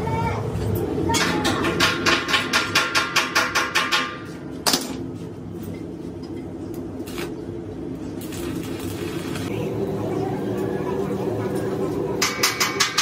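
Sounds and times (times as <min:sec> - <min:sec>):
steady low hum: 0:04.3 - 0:13.0
steel tool tapping metal tank: 0:12.2 - 0:13.0.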